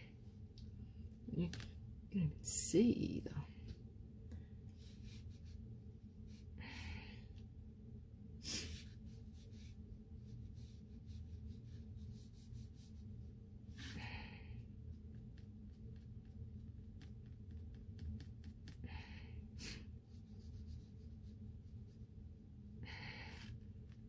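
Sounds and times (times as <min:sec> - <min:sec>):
steady low hum: 0:00.0 - 0:24.0
person breathing: 0:06.3 - 0:07.4, 0:13.7 - 0:14.7, 0:18.8 - 0:20.0, 0:22.8 - 0:23.6.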